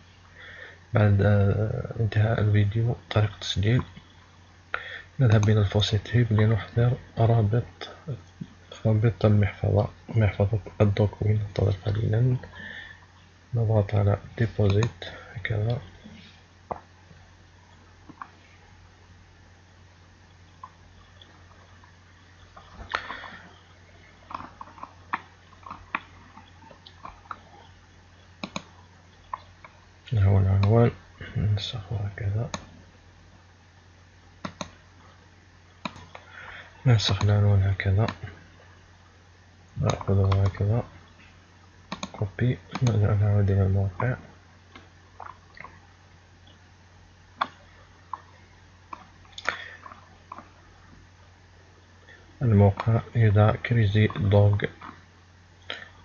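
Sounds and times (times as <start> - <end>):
low steady hum: 0.0 - 56.0
computer mouse clicking: 14.7 - 15.0, 24.2 - 27.6, 28.4 - 29.8, 32.5 - 32.7, 34.4 - 34.8, 35.8 - 36.3, 39.8 - 40.6, 41.9 - 43.0.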